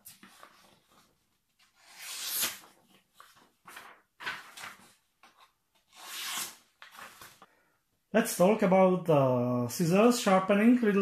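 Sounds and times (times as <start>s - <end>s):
paper rustling: 0.0s - 7.5s.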